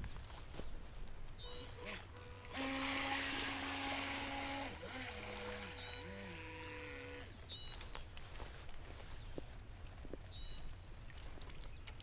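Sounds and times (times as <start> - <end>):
electric motor whine: 1.6 - 7.3.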